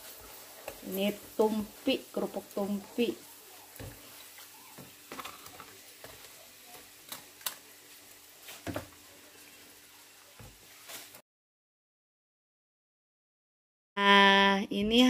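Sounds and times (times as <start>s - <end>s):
spatula and chopsticks scraping pan: 0.0s - 9.6s
cracker sizzling in hot oil: 0.0s - 11.2s.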